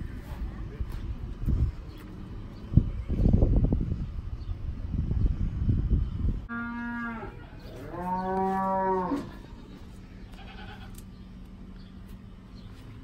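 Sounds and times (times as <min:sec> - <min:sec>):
low rumbling noise: 0:00.0 - 0:13.0
cattle mooing: 0:06.5 - 0:09.6.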